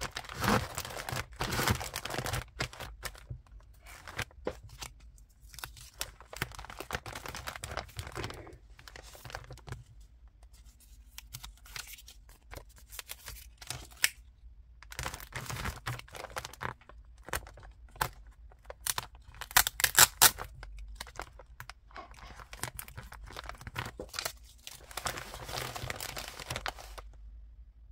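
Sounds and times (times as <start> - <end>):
plastic bag crinkling: 0.0 - 9.8, 14.9 - 27.2.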